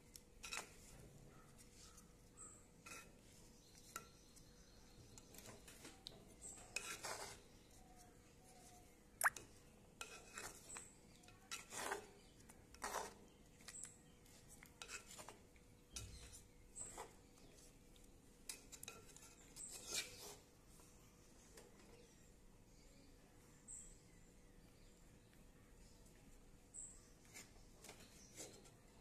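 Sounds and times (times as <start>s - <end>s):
ladle scraping clay pot: 6.4s - 7.4s, 11.5s - 13.3s, 14.8s - 17.6s, 18.5s - 20.5s.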